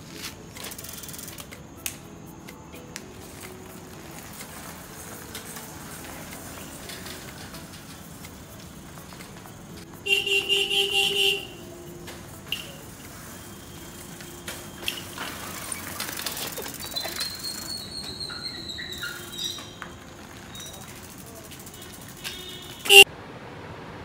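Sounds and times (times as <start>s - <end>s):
bicycle electric horn honk: 10.0s - 16.0s, 21.5s - 23.1s.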